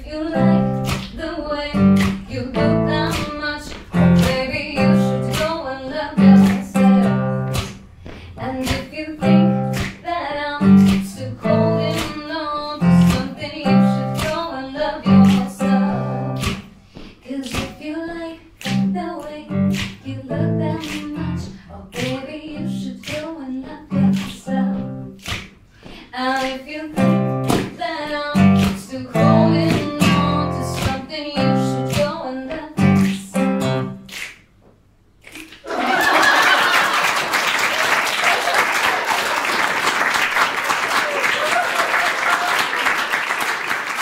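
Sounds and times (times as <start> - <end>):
acoustic guitar fingerstyle: 1.7 - 7.7, 10.6 - 16.7, 18.7 - 25.2, 27.0 - 34.1
applause: 35.3 - 44.0.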